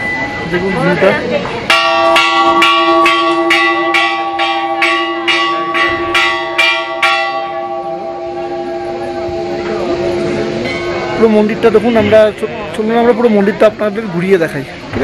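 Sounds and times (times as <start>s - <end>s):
temple bell ringing: 0.0s - 1.0s, 1.6s - 12.3s.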